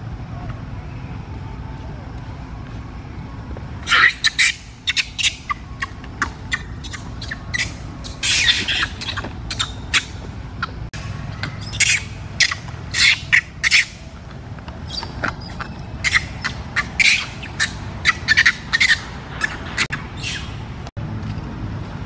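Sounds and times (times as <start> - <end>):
low steady rumble: 0.0 - 22.0
monkey screaming: 3.8 - 14.1, 14.9 - 20.6.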